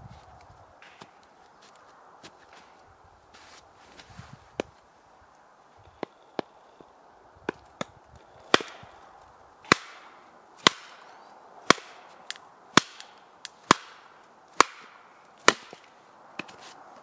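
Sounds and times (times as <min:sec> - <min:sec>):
hatchet chopping firewood: 0:00.8 - 0:01.2, 0:07.4 - 0:09.0, 0:09.6 - 0:16.8.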